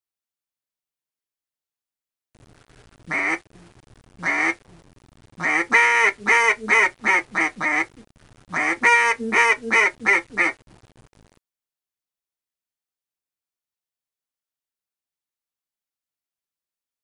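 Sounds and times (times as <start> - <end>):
duck quacking: 3.1 - 3.5, 4.2 - 4.6, 5.4 - 10.6.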